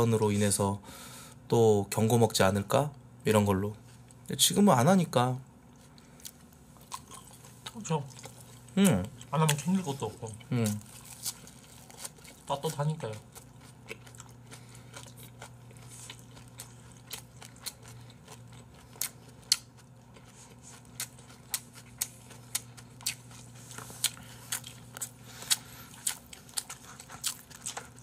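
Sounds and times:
faint steady hum: 0:00.0 - 0:28.0
chewing with mouth clicks: 0:05.7 - 0:28.0.

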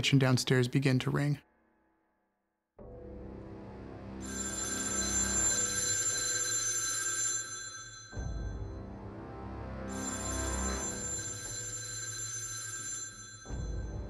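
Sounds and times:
rotary telephone bell ringing: 0:04.2 - 0:08.6, 0:09.9 - 0:14.0.

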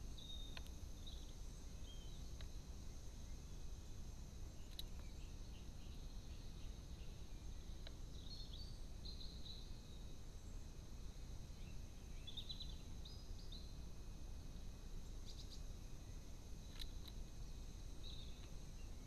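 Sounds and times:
distant bird chirps: 0:00.0 - 0:02.6, 0:11.5 - 0:13.8, 0:15.2 - 0:17.2, 0:18.0 - 0:19.0
steady high hiss: 0:00.0 - 0:19.0
soft single clicks: 0:00.5 - 0:00.8, 0:04.7 - 0:05.1, 0:16.7 - 0:17.2.

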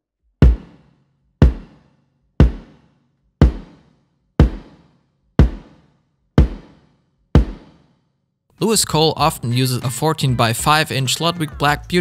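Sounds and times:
dry bass drum kicks: 0:00.4 - 0:00.8, 0:01.4 - 0:01.8, 0:02.4 - 0:02.8, 0:03.4 - 0:03.8, 0:04.4 - 0:05.8, 0:06.4 - 0:06.8, 0:07.4 - 0:07.8.

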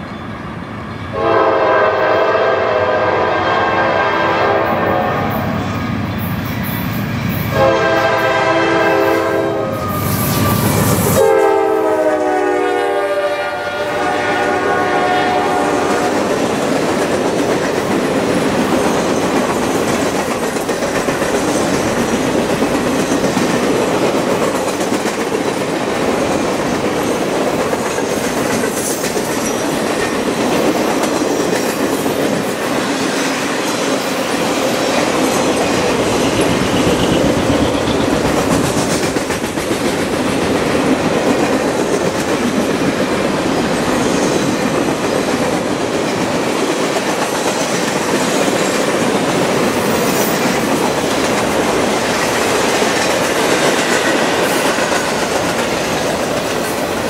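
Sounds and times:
train passing rush: 0:00.0 - 0:57.0
locomotive horn blasts: 0:01.1 - 0:05.4, 0:07.5 - 0:16.2
train wheels clattering on rails: 0:15.4 - 0:57.0.

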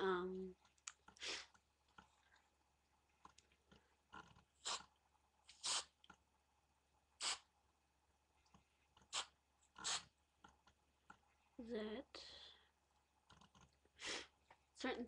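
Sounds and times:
spray paint can hissing: 0:04.6 - 0:04.9, 0:05.5 - 0:05.9, 0:07.2 - 0:07.5, 0:09.1 - 0:10.1.

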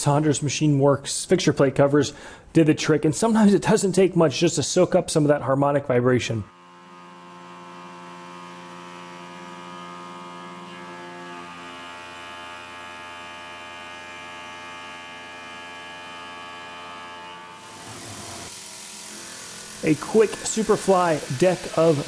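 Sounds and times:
milling machine cutter whine: 0:06.5 - 0:22.0.

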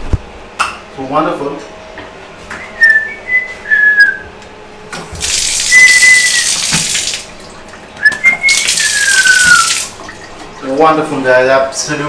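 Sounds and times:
high whistling tone: 0:02.6 - 0:04.3, 0:05.7 - 0:06.6, 0:08.0 - 0:09.9
shower spraying onto tile: 0:05.1 - 0:07.4, 0:08.3 - 0:10.1.

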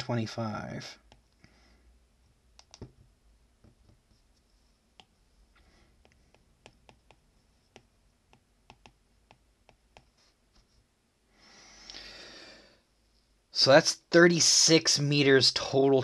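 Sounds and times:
stylus tapping on glass screen: 0:02.6 - 0:04.0, 0:06.0 - 0:10.1.

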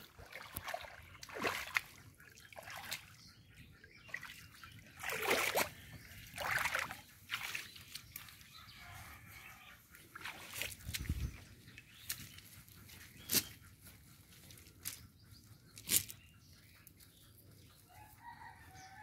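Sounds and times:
water splashes: 0:00.0 - 0:03.2, 0:04.0 - 0:07.9, 0:10.1 - 0:11.3
pond water trickling and sloshing: 0:00.0 - 0:16.3.

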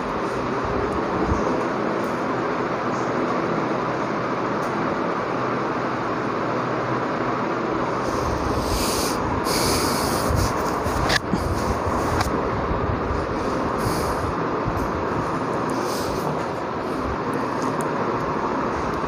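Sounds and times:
loud rushing noise: 0:06.8 - 0:19.0
high hiss: 0:07.9 - 0:10.8.

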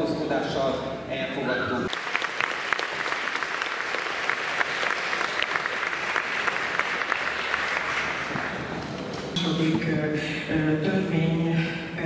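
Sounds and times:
audience applauding: 0:01.9 - 0:09.4.

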